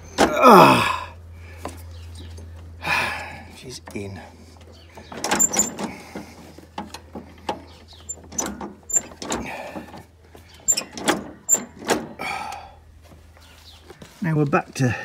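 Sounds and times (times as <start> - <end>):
metal parts clunking and clicking: 3.8 - 12.2.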